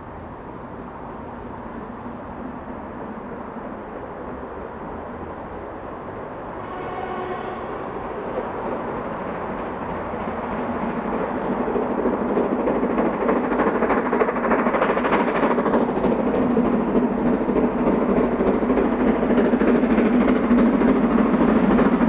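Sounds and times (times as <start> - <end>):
steam locomotive chuffing: 6.7 - 22.0.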